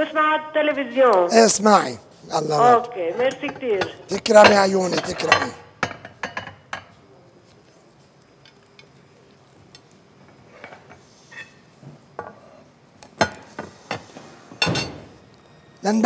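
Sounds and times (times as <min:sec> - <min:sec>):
tableware clinking and knocking: 0:03.3 - 0:07.0, 0:10.4 - 0:15.2.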